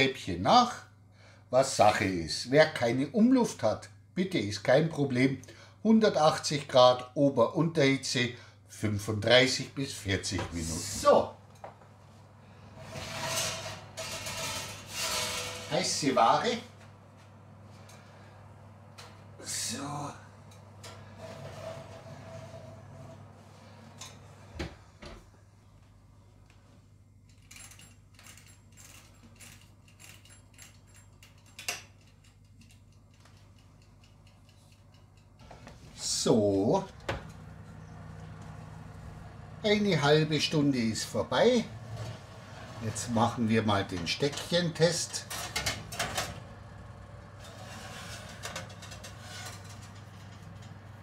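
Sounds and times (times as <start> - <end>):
metal pan scraping on oven rack: 12.7 - 16.3, 20.8 - 24.2, 41.5 - 51.0
steady low hum: 29.4 - 51.0.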